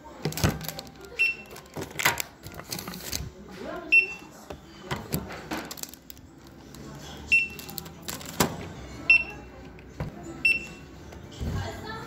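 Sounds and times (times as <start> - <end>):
plastic goods rustling and clicking: 0.0 - 8.7
barcode scanner beep: 1.2 - 1.6, 7.3 - 7.7, 9.1 - 9.5, 10.4 - 10.8.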